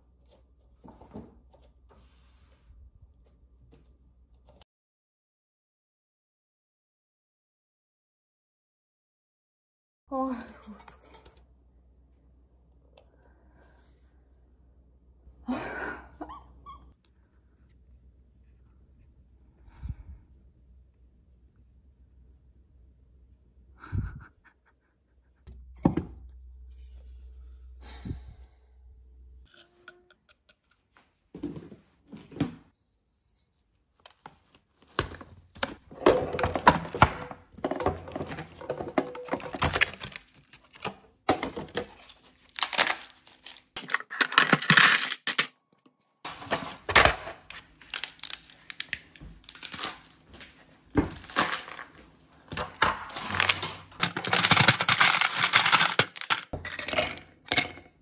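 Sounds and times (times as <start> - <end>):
objects being handled: 29.4 - 57.9.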